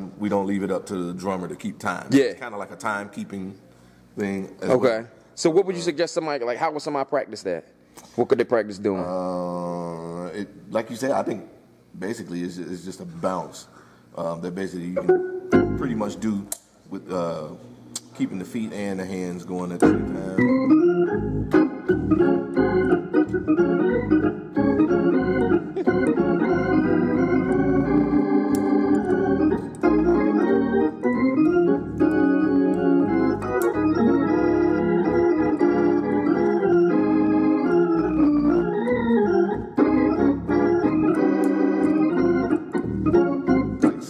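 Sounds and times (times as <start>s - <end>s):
organ playing gospel chords: 8.5s - 11.2s, 12.0s - 17.5s, 18.2s - 44.0s.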